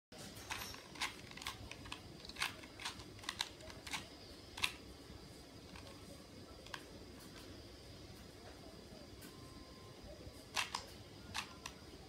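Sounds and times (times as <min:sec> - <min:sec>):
puzzle cube plastic clicks: 0:00.4 - 0:04.8, 0:05.6 - 0:06.9, 0:10.5 - 0:11.8.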